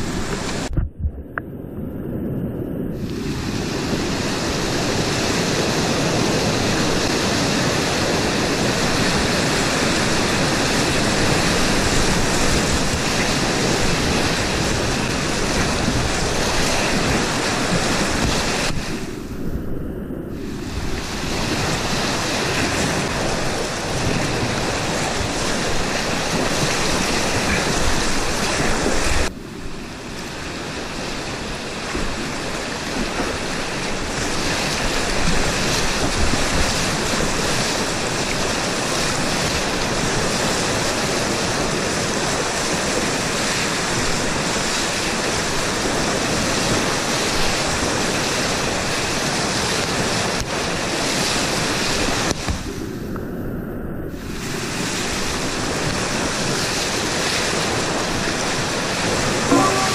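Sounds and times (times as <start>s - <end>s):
whitewater river rushing: 3.0s - 19.1s, 20.4s - 52.4s, 54.5s - 59.9s.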